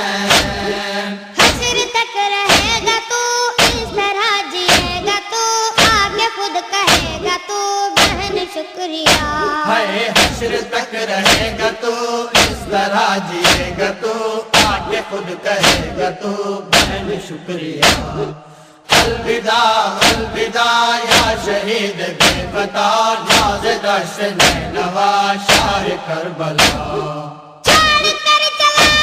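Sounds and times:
heavy steady drum beat: 0.3 - 0.8, 1.4 - 1.8, 8.0 - 8.4, 10.2 - 11.8, 12.4 - 13.9, 14.5 - 15.0, 15.6 - 16.1, 16.7 - 17.2, 17.8 - 18.3, 18.9 - 19.4, 20.0 - 20.5, 21.1 - 21.6, 22.2 - 22.7, 23.3 - 23.8, 24.4 - 24.9, 25.5 - 26.0, 26.6 - 28.2
man chanting a lament: 9.2 - 29.0.

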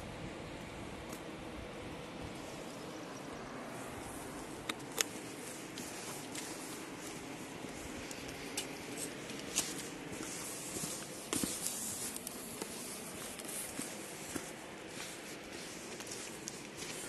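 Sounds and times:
steady hiss: 0.0 - 17.0
footsteps on gravel: 3.8 - 17.0.

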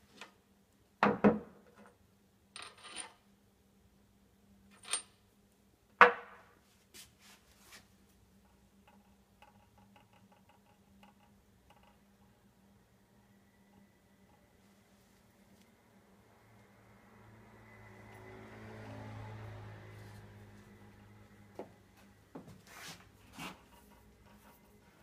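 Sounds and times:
metal clinks and knocks: 8.4 - 12.4.

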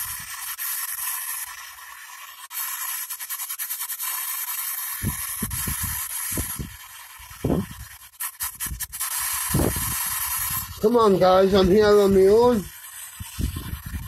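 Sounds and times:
rapid scanning clicks: 0.0 - 14.0
chopped radio fragments: 7.4 - 14.0.

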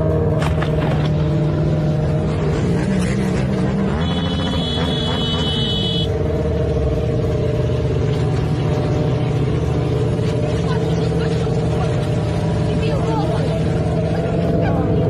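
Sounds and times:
motorcycle engine running: 0.0 - 15.0
high steady tone: 4.0 - 6.2.

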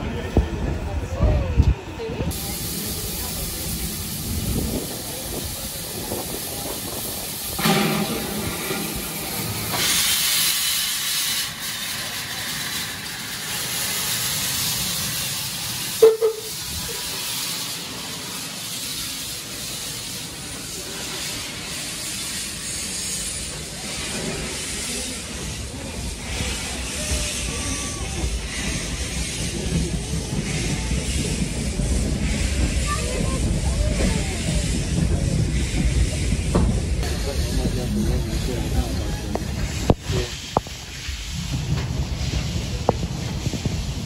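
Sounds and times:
steam locomotive moving: 0.0 - 44.0
steam hissing from drain cocks: 2.3 - 33.2.

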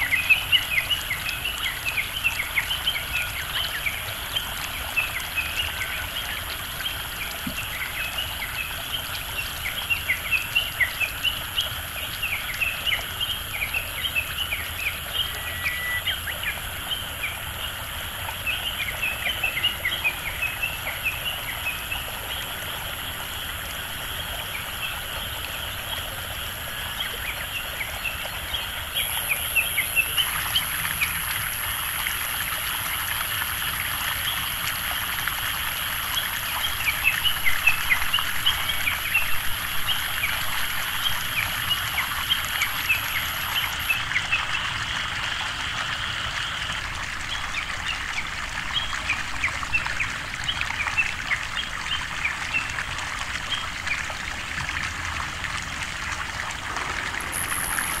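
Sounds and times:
frog chorus: 0.0 - 50.0, 56.1 - 58.0
steady hiss: 55.5 - 58.0
insects whining: 56.7 - 58.0.

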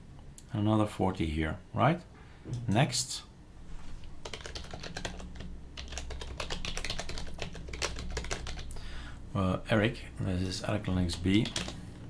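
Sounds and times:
low steady hum: 0.0 - 12.0
computer keyboard typing: 4.2 - 8.8, 11.1 - 11.8.

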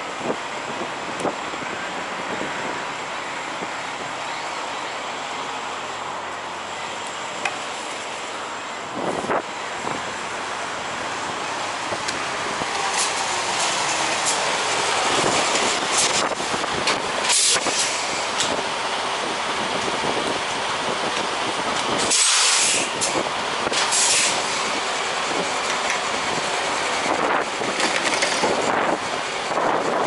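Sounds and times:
trucks idling and moving: 0.0 - 30.0
sharp clicks and clatters: 27.7 - 28.7.

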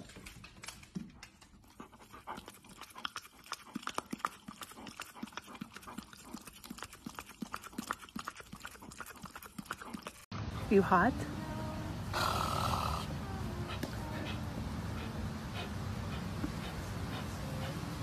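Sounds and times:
dog claws clicking on wooden floor: 0.0 - 2.0
dog licking: 0.2 - 10.3.

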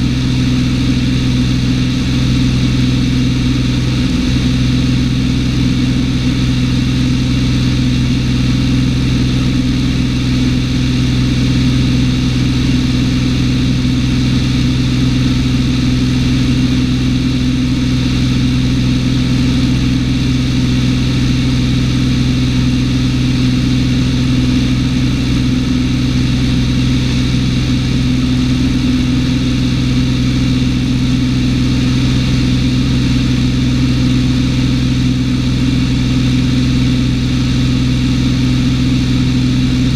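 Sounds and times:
airplane engine droning in cabin: 0.0 - 39.9.

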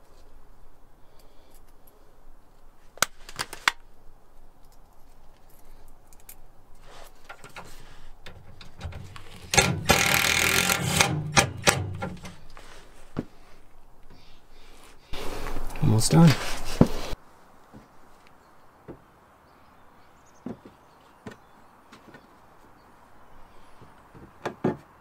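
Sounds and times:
screws clicking in plastic bin: 8.8 - 12.3
cordless drill into steel: 9.4 - 12.2.

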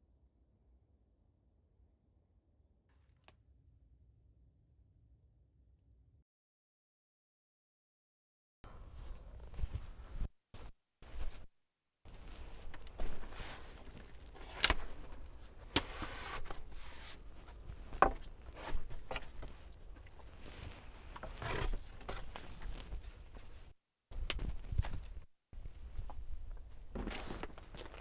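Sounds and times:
footsteps: 8.7 - 11.5
rustling: 12.1 - 23.8.

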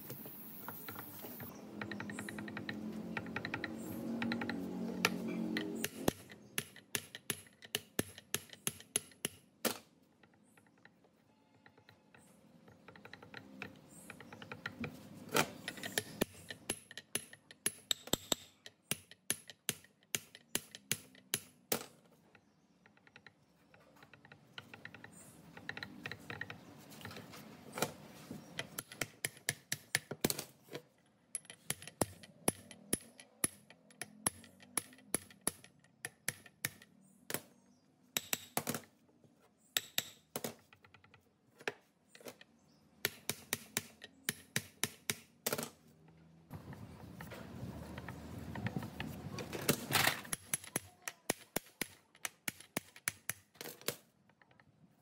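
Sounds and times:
hand tools clicking on metal: 0.8 - 9.5, 10.2 - 27.3, 28.5 - 30.1, 31.3 - 37.4, 50.1 - 54.7.

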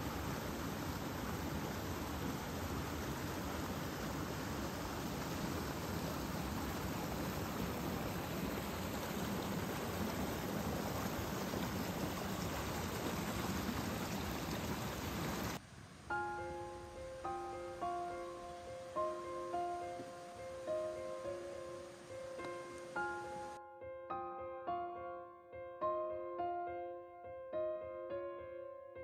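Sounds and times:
waterfall splashing over rocks: 0.0 - 15.6
soft background music: 16.1 - 29.0.

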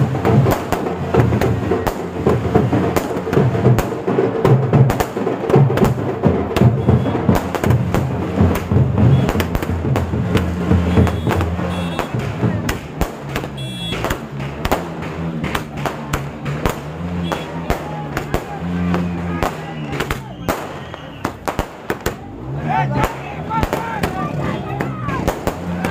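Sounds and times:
loud music with drumbeat: 0.0 - 20.2
firecrackers banging: 0.0 - 25.9.

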